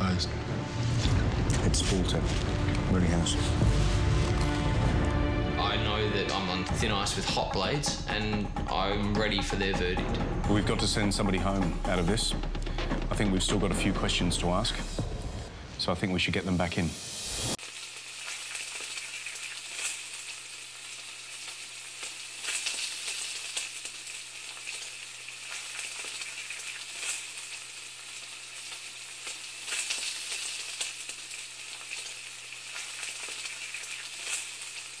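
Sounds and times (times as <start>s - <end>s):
crackling hiss: 16.4s - 35.0s.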